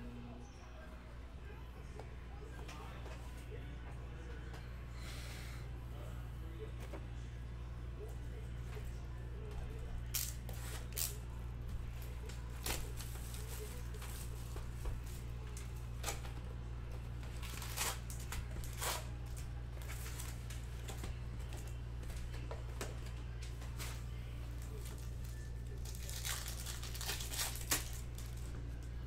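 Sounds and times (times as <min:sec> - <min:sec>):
low hum: 0:00.0 - 0:10.2.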